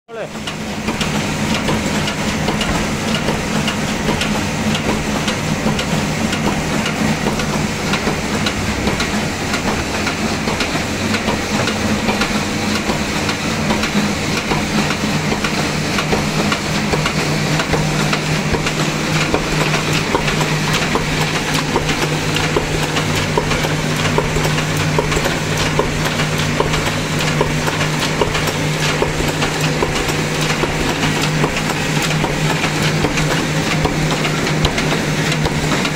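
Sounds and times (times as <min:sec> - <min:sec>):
low drive hum: 0:00.2 - 0:35.9
machine mechanical clatter: 0:00.4 - 0:35.9.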